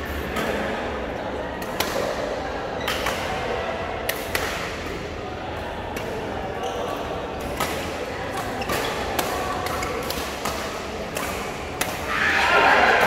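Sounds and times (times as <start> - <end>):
voices in reverberant hall: 0.0 - 13.0
rackets striking shuttlecock: 4.0 - 5.0, 5.9 - 12.1.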